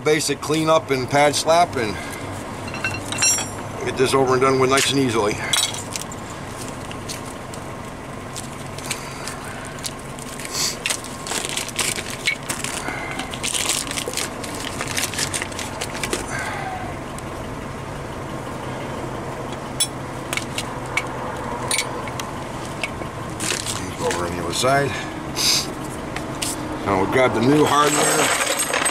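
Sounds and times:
plastic bag crinkling: 0:09.7 - 0:16.3.

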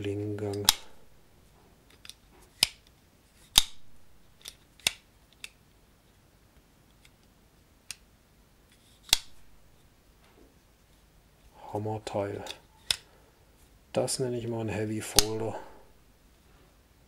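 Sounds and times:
folding knife clicks and snaps: 0:03.5 - 0:05.6, 0:09.0 - 0:09.4, 0:15.2 - 0:15.4.

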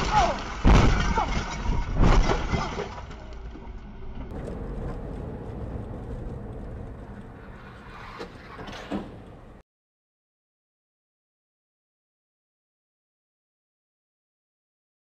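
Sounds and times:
debris clattering: 0:00.0 - 0:04.5
car driving: 0:02.9 - 0:09.6.

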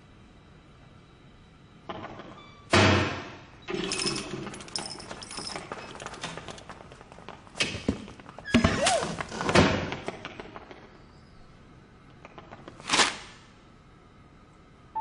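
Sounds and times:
clattering and rattling: 0:03.7 - 0:10.8.

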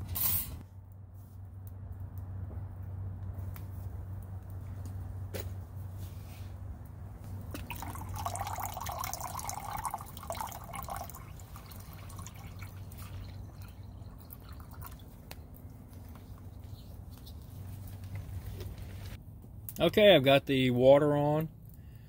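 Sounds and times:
fire crackling: 0:00.6 - 0:19.9
water pouring into metal pot: 0:07.6 - 0:15.2.

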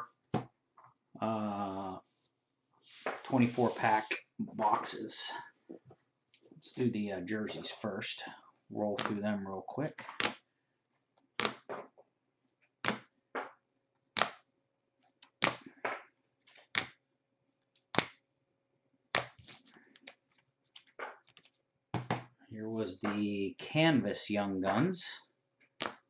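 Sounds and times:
plastic card holders clacking: 0:09.0 - 0:09.2.

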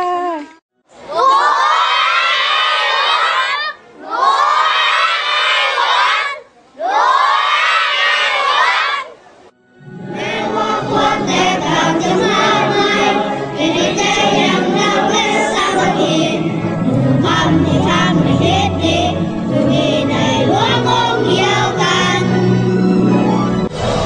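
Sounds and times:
instrumental accompaniment: 0:09.6 - 0:24.0
choir singing: 0:09.7 - 0:24.0.

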